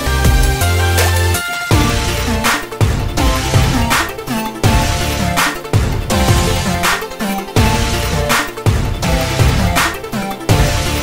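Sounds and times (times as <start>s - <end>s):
electronic music with deep bass: 0.0s - 11.0s
drum hits: 1.7s - 9.9s.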